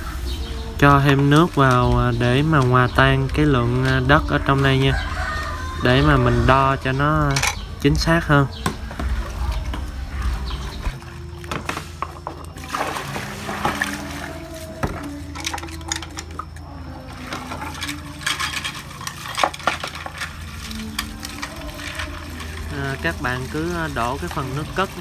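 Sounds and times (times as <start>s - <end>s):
water pouring into cup: 12.2s - 25.0s.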